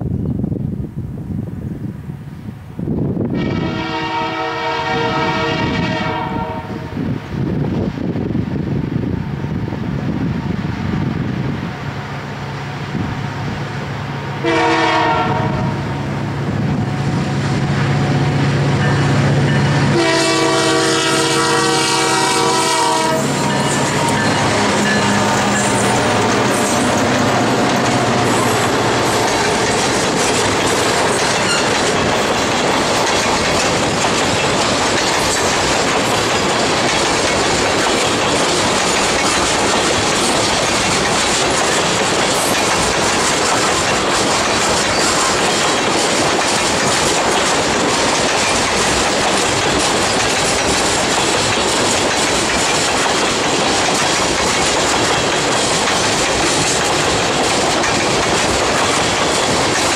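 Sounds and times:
diesel locomotive hum: 0.0s - 59.9s
train wheels clacking on rails: 11.6s - 59.9s
wheel squeal: 31.2s - 31.8s, 44.9s - 45.4s.

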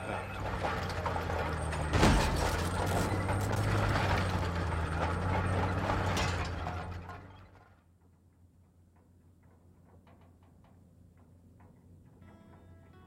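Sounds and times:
machine engine running: 0.0s - 7.6s
metallic clanking and grinding: 0.0s - 8.1s.

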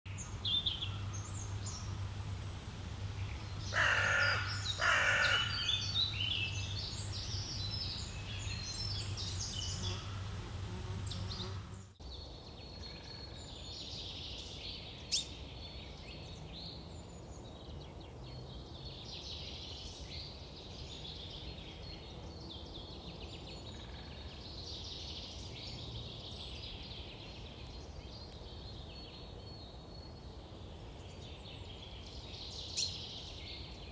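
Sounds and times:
low hum: 0.1s - 3.8s
small birds chirping: 0.1s - 33.9s
crow cawing: 3.7s - 5.9s.

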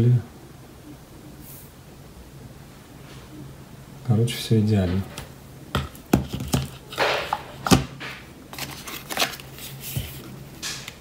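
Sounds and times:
card rustling: 5.0s - 11.0s.

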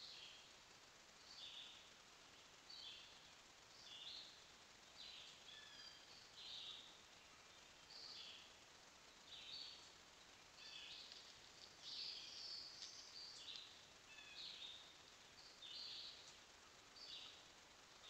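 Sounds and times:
high chirping calls: 10.6s - 16.4s.

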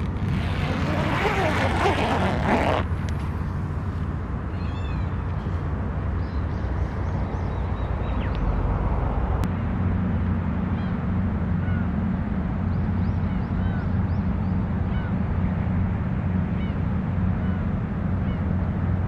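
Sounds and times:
tent zip being pulled: 0.0s - 2.9s
gulls calling: 4.5s - 5.6s, 12.8s - 15.6s.

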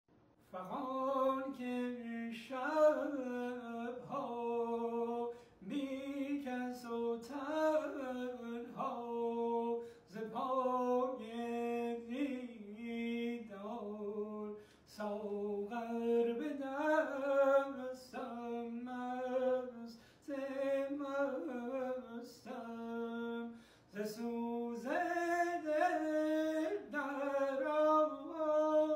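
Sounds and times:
man singing unaccompanied: 0.4s - 28.9s
breaths between phrases: 23.5s - 23.9s.

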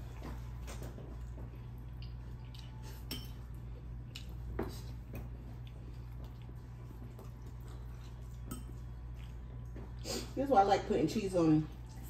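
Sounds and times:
steady low hum: 0.0s - 12.0s
fork clinking against bowl: 3.0s - 3.5s.

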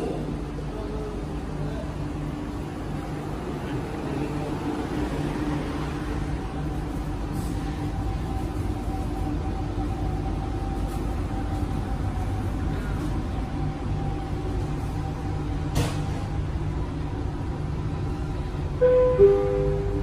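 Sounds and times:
train carriage hum and rumble: 0.0s - 20.0s
steady tones: 16.3s - 20.0s.

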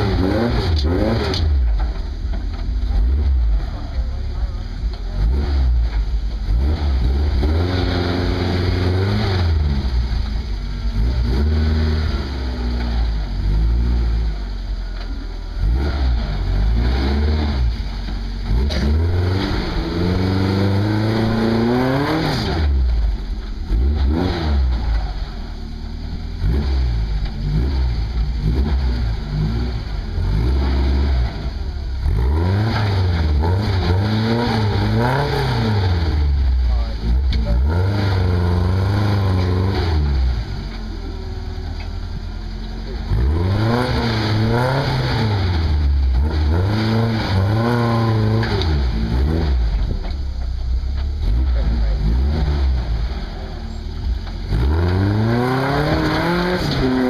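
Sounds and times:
truck engine revving: 0.0s - 57.0s.

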